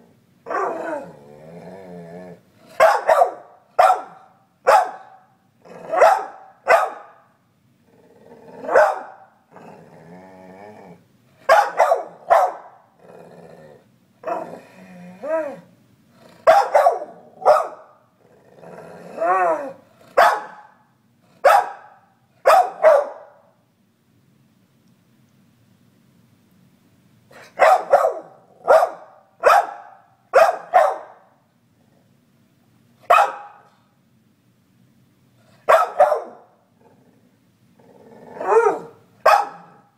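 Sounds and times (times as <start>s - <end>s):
dog grumbling and warbling: 0.0s - 2.8s, 5.6s - 6.0s, 7.8s - 8.8s, 9.5s - 11.0s, 13.0s - 17.5s, 18.2s - 20.2s, 36.8s - 39.9s
dog barking: 0.5s - 0.8s, 2.8s - 7.3s, 8.6s - 9.3s, 11.5s - 12.8s, 16.5s - 18.0s, 20.2s - 20.8s, 21.4s - 23.4s, 27.4s - 31.3s, 33.1s - 33.7s, 35.6s - 36.5s, 38.4s - 39.9s.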